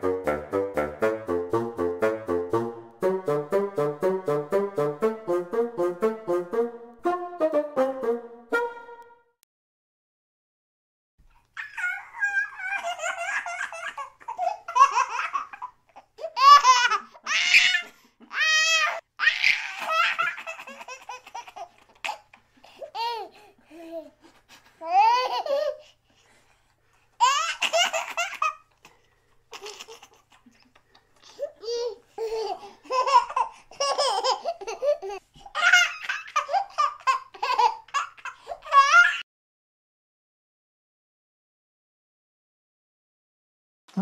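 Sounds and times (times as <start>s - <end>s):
baby laughing and giggling: 11.6s - 24.2s, 24.8s - 25.8s, 27.2s - 28.9s, 29.5s - 39.2s.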